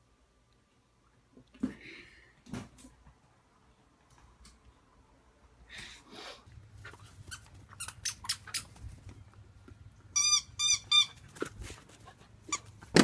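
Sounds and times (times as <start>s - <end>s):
squeaky dog toy squeaking: 7.2s - 8.8s, 10.1s - 11.4s.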